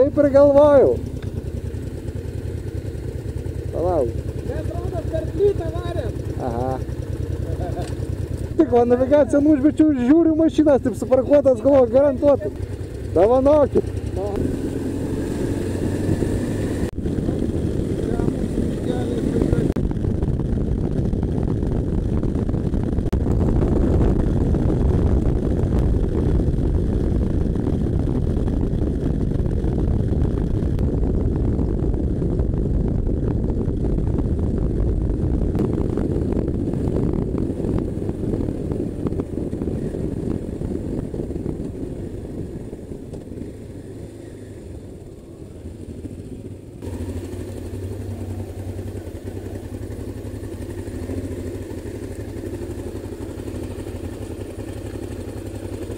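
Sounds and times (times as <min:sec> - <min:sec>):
motorcycle engine at road speed: 0:00.0 - 0:55.9
motorcycle engine idling: 0:00.0 - 0:55.9
wind noise: 0:13.8 - 0:46.2.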